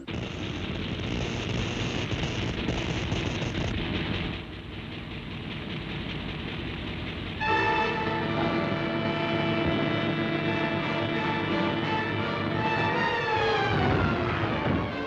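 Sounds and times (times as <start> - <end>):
ray machine rumbling: 0.0 - 15.0
chord of steady tones: 7.4 - 15.0.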